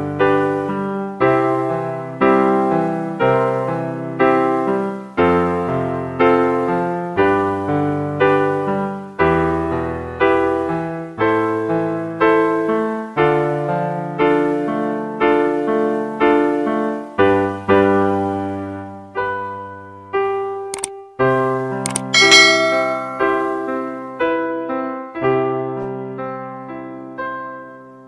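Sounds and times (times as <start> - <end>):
piano chords ringing: 21.3 - 28.0.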